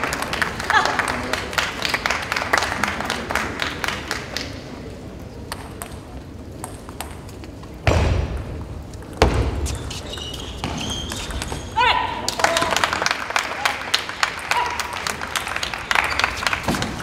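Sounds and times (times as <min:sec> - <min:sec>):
crowd clapping: 0:00.0 - 0:04.6, 0:12.2 - 0:17.0
table tennis ball bouncing: 0:05.5 - 0:11.6.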